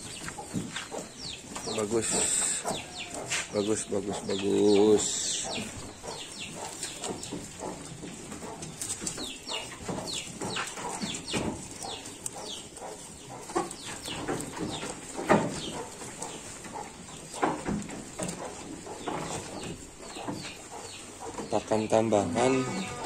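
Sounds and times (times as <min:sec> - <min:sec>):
sheep rustling and chewing leaves: 0:00.0 - 0:23.0
small birds chirping: 0:00.0 - 0:23.0.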